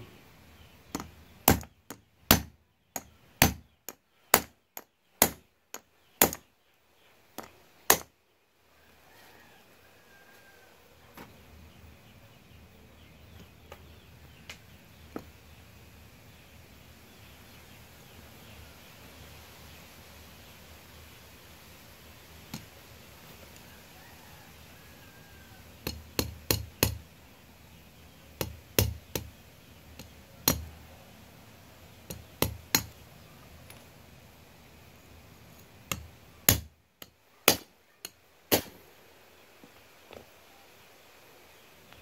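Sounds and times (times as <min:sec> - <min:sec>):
hammer striking metal punch: 0:00.9 - 0:03.6, 0:04.3 - 0:04.5, 0:05.2 - 0:05.4, 0:06.2 - 0:06.4, 0:07.9 - 0:08.1, 0:25.9 - 0:27.0, 0:28.4 - 0:29.3, 0:30.0 - 0:30.6, 0:32.1 - 0:33.0, 0:35.9 - 0:36.7.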